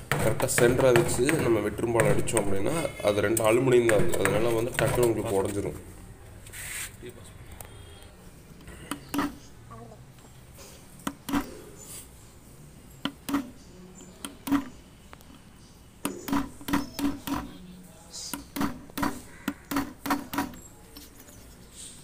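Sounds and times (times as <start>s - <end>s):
hammer striking chisel on metal: 0.0s - 2.5s, 18.3s - 20.6s.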